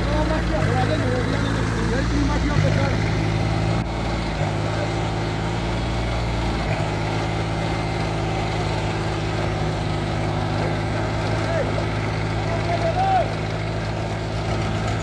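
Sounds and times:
tractor diesel engine droning: 0.0 - 15.0.

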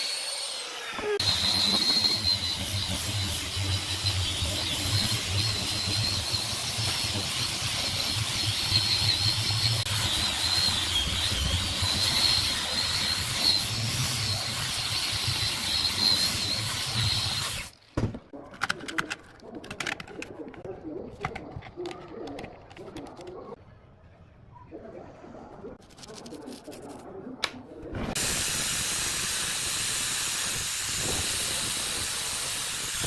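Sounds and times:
angle grinder whining: 0.0 - 17.7
scattered clicks: 18.5 - 23.6.

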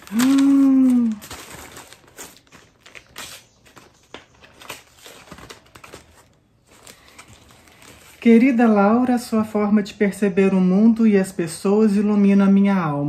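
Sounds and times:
woman's drawn-out vocal sound: 0.0 - 1.3
gift wrapping rustling: 0.0 - 9.2.

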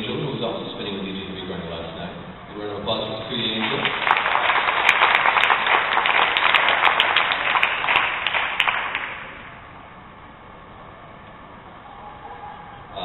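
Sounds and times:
audience applauding: 3.4 - 9.5.

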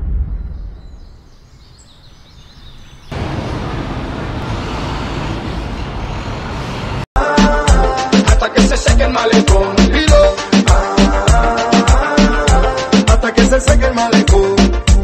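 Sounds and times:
street traffic noise: 3.0 - 7.2
dance music with strong beat: 7.2 - 15.0.

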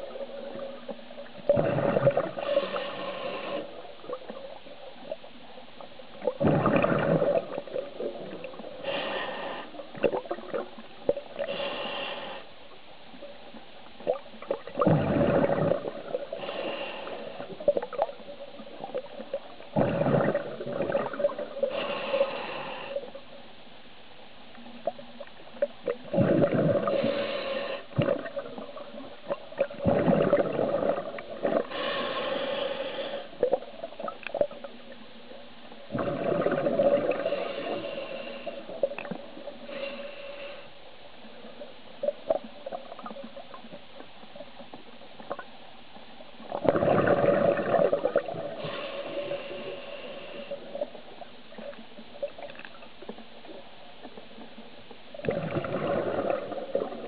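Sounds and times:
gurgling exhaled bubbles: 0.0 - 3.0, 6.2 - 8.8, 9.9 - 11.6, 14.0 - 16.5, 17.4 - 21.8, 25.6 - 27.2, 27.9 - 31.9, 35.9 - 39.6, 46.4 - 48.8, 55.1 - 57.0
hissing regulator inhalations: 2.2 - 3.8, 16.3 - 17.6, 26.8 - 28.0, 31.6 - 33.5, 37.1 - 38.9, 48.6 - 51.0.

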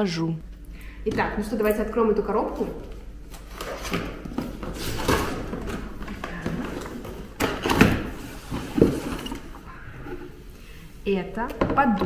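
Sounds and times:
cardboard rustling and scraping: 2.6 - 10.4.

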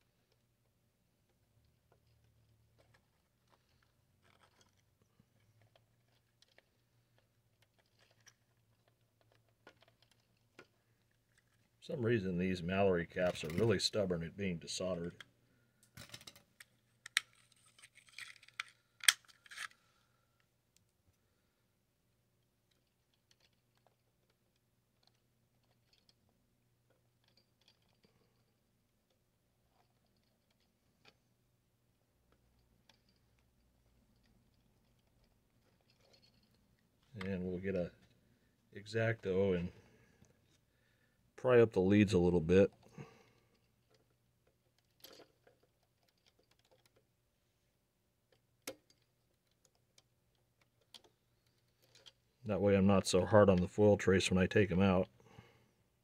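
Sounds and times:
small clicks and ticks: 0.0 - 11.8, 22.4 - 31.3, 32.2 - 37.4, 42.6 - 52.4.

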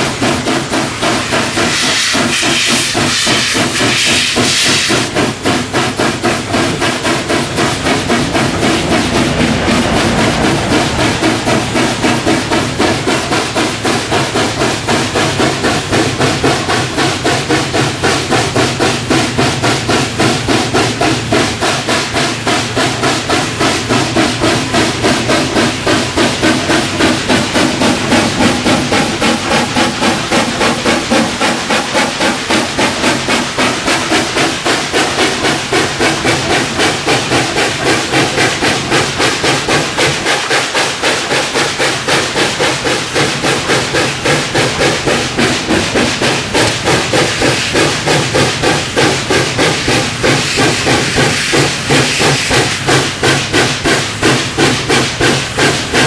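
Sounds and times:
steam hiss: 0.0 - 56.0
steam locomotive exhaust beats: 0.0 - 56.0.

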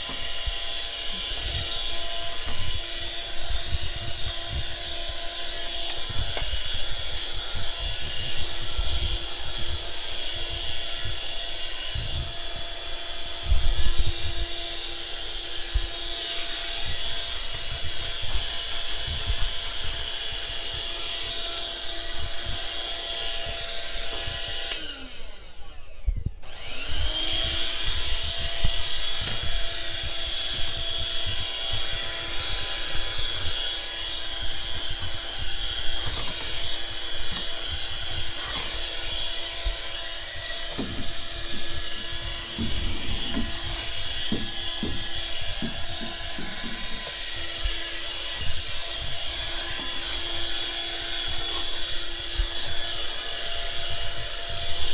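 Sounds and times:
vacuum cleaner whining: 0.0 - 54.9.

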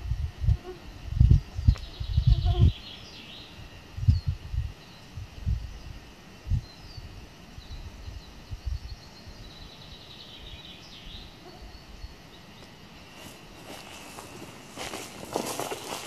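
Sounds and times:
songbirds singing: 0.0 - 16.0
footsteps on forest floor: 13.1 - 16.0.

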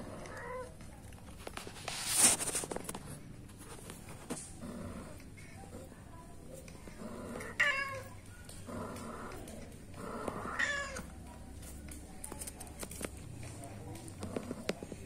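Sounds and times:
cats meowing: 0.2 - 0.8, 7.4 - 8.2, 10.3 - 11.2.

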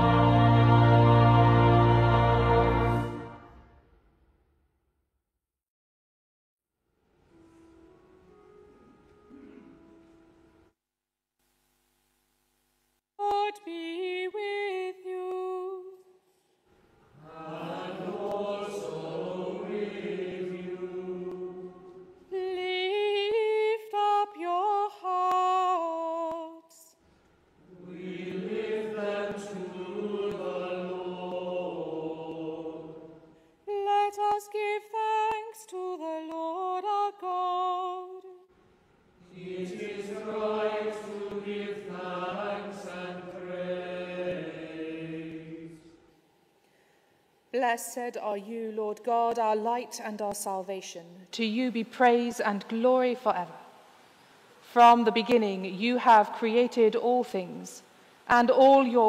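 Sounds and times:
group of voices singing: 0.0 - 3.5, 17.2 - 23.4, 27.6 - 36.8, 39.2 - 46.0.

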